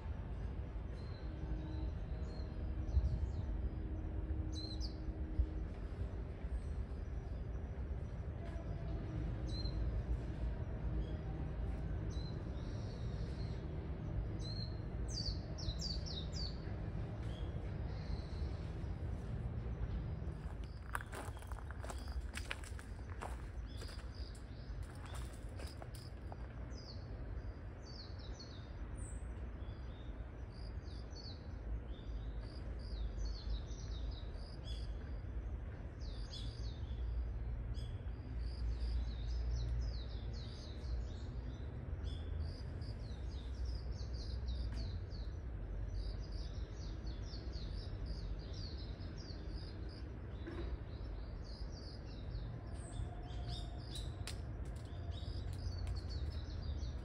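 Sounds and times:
low outdoor rumble: 0.0 - 57.0
small birds chirping: 20.3 - 37.2, 37.8 - 57.0.

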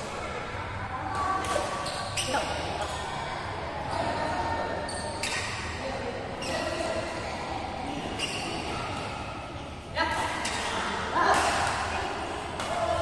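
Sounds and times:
rackets hitting shuttlecock: 10.1 - 13.0.

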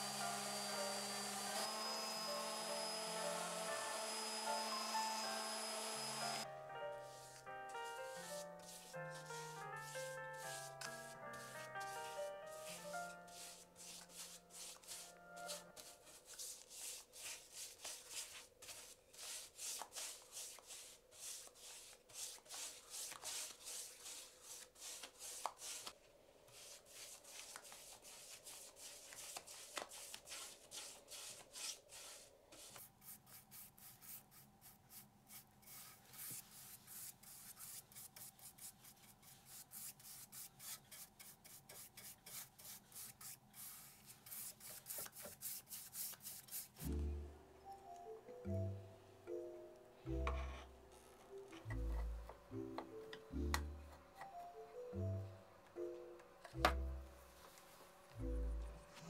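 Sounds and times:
hand rubbing on a surface: 7.1 - 46.9.

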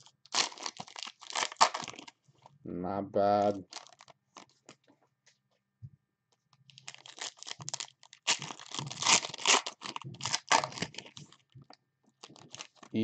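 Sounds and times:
plastic packaging tearing and crinkling: 0.0 - 2.2, 3.6 - 4.8, 6.7 - 11.4, 12.2 - 13.0.

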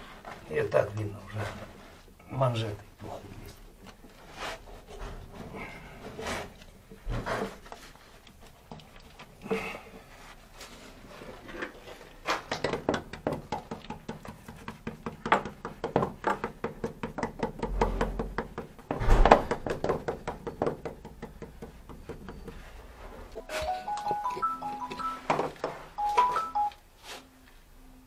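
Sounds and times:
knocking and clattering: 12.5 - 22.6
heavy thud: 19.0 - 19.6.

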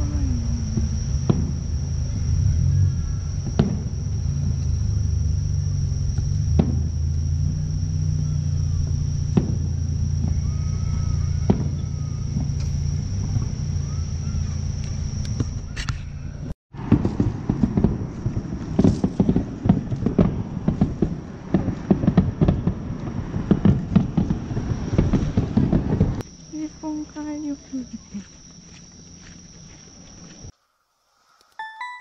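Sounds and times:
insect trill: 0.0 - 16.5, 26.2 - 32.0
steady low hum: 0.0 - 31.6
distant firework pops: 0.8 - 1.6, 3.4 - 4.0, 6.2 - 7.0, 9.3 - 10.4, 11.4 - 13.5, 16.8 - 26.2
footsteps: 27.9 - 30.5.

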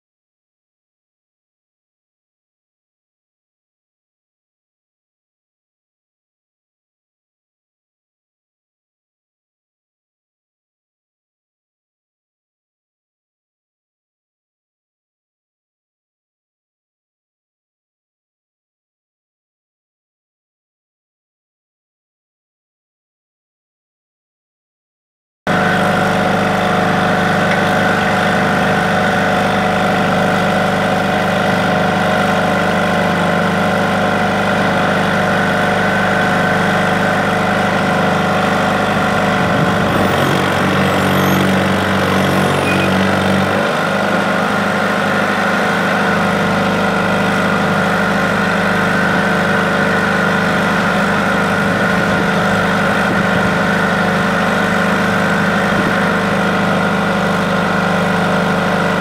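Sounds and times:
dozer engine idling: 25.5 - 59.0.

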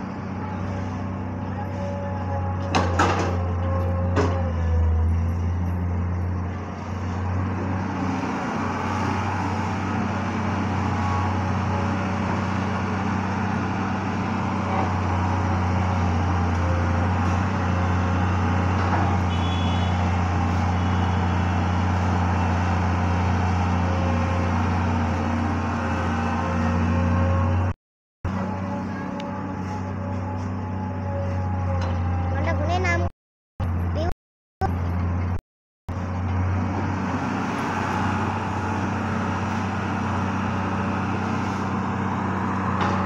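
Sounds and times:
excavator diesel engine droning: 0.0 - 43.0.

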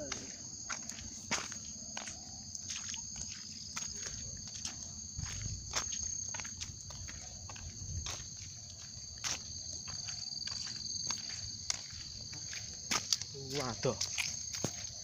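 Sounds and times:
footsteps crunching on leaves: 0.0 - 15.0
high-pitched insect chorus: 0.0 - 15.0.

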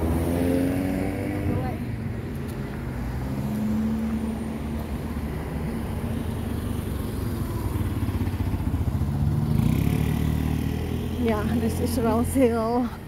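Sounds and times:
motor scooter engine passing: 3.1 - 12.9.

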